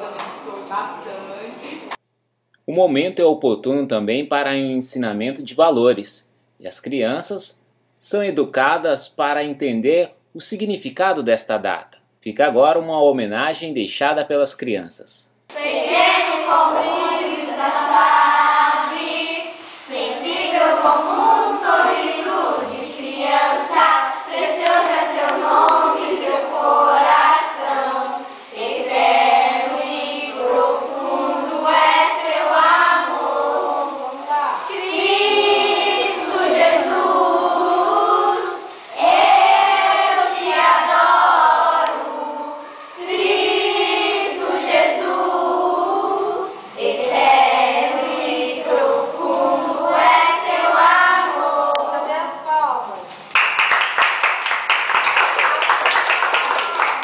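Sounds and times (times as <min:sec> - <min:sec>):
children singing: 0:15.5 - 0:52.2.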